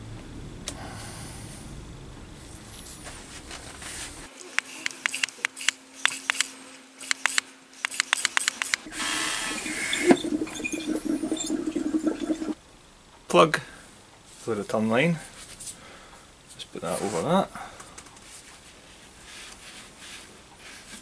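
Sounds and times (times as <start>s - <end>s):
sharp clicks of hose fittings: 4.5s - 9.0s
vacuum pump suction hiss: 8.8s - 12.6s.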